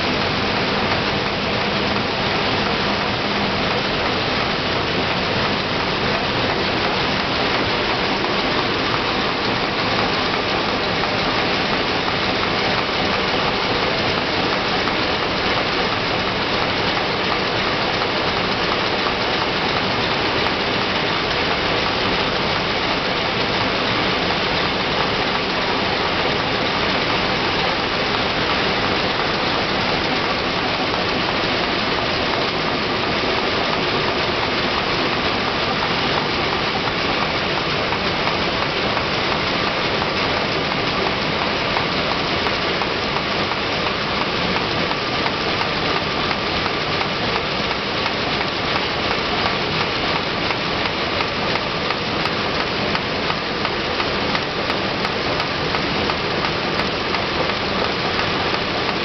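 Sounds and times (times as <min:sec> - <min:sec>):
machine running: 0:00.0 - 0:59.0.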